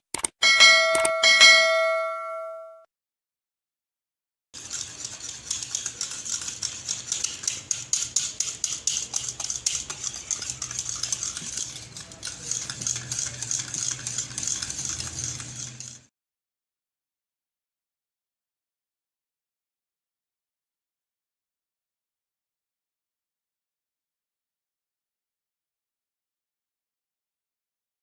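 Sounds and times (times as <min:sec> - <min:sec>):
utensil beating in a bowl: 0:04.6 - 0:16.1.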